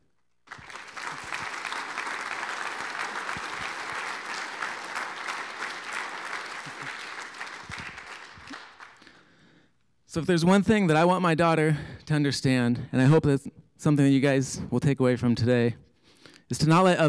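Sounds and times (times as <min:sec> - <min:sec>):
audience applauding: 0:00.4 - 0:09.3.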